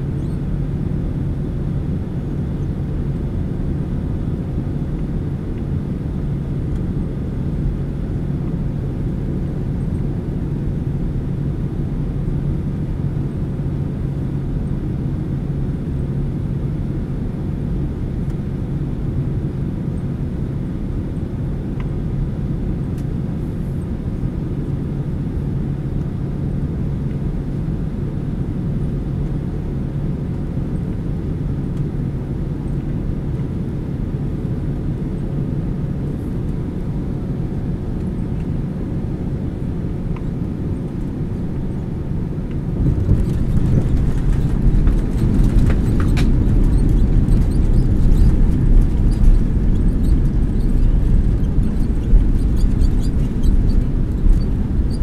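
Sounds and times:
steady low hum: 0:00.0 - 0:55.0
jet engine drone: 0:20.4 - 0:55.0
airflow over fuselage: 0:31.0 - 0:55.0.

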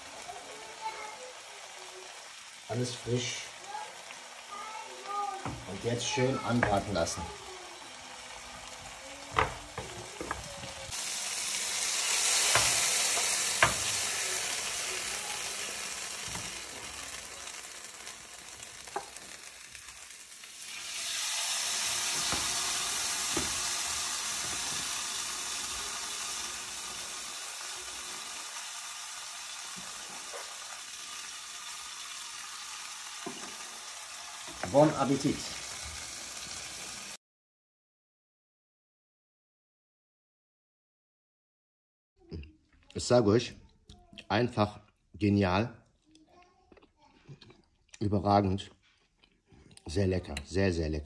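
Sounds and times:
meat and vegetables sizzling: 0:00.0 - 0:37.2
wooden spoon knocking pan: 0:06.5 - 0:06.9, 0:09.3 - 0:10.7, 0:12.4 - 0:13.9, 0:23.3 - 0:23.7.

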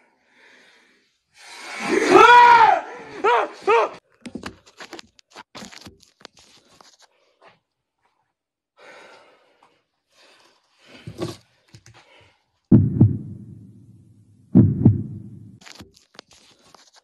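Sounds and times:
rustling and small clicks: 0:04.2 - 0:07.2, 0:15.6 - 0:17.0
faint breathing: 0:08.8 - 0:11.2
heartbeat thump: 0:12.7 - 0:15.6.

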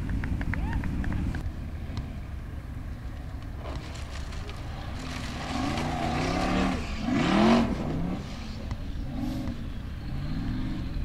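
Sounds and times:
buggy engine revving: 0:02.6 - 0:11.0.

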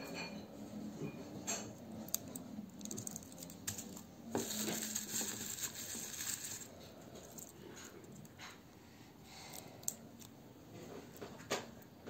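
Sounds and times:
garlic skins crackling: 0:01.8 - 0:07.6.

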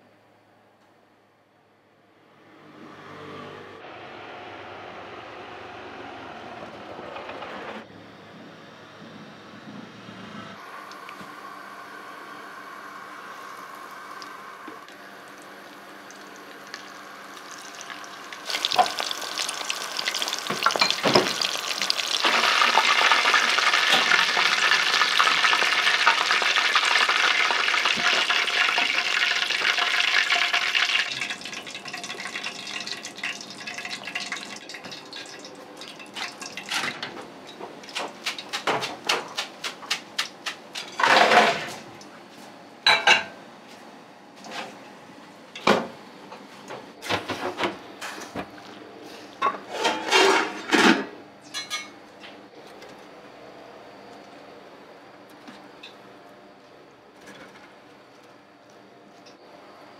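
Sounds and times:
dishes and utensils clinking: 0:49.4 - 0:52.0.

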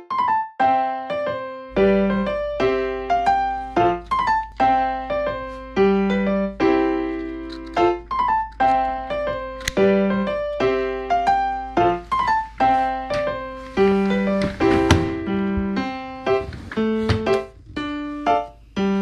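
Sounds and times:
piano background music: 0:00.0 - 0:19.0.

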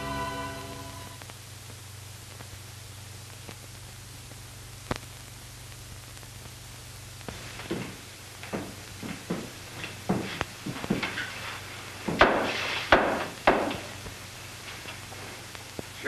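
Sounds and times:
held music chord: 0:00.0 - 0:01.2
film soundtrack hiss and hum: 0:00.0 - 0:16.0
faint crackles: 0:01.1 - 0:16.0.

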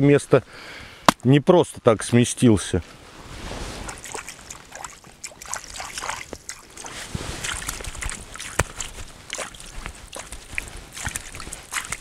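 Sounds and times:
water sloshing and lapping: 0:03.3 - 0:12.0.

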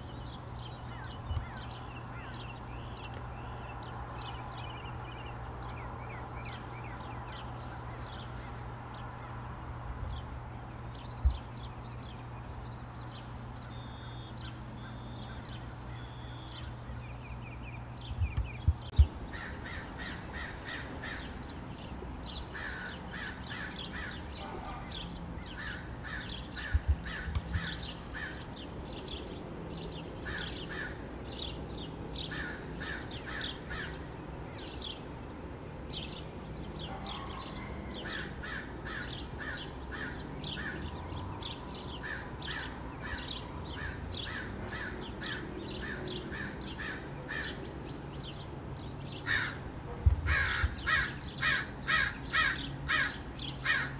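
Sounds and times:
crows cawing: 0:19.3 - 0:21.3, 0:22.5 - 0:24.3, 0:25.5 - 0:28.5, 0:30.2 - 0:31.1, 0:32.3 - 0:34.0, 0:38.0 - 0:40.9, 0:42.0 - 0:47.6, 0:49.2 - 0:49.6, 0:50.3 - 0:53.9.

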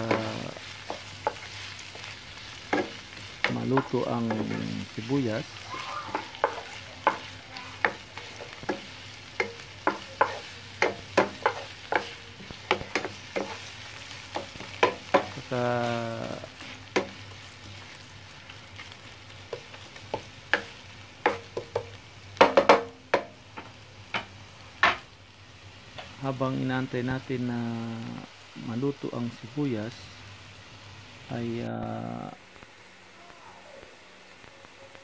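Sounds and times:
spatula knocking and scraping pan: 0:00.0 - 0:04.7, 0:06.1 - 0:15.5, 0:16.9 - 0:17.2, 0:19.5 - 0:25.0
onion sizzling in hot oil: 0:00.0 - 0:35.0.

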